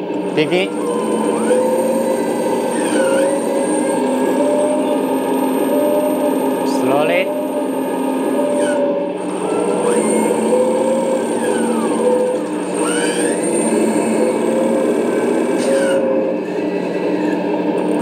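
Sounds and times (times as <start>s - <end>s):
hydraulic drive whirring: 0.0s - 18.0s
simulated diesel engine sound: 0.0s - 18.0s.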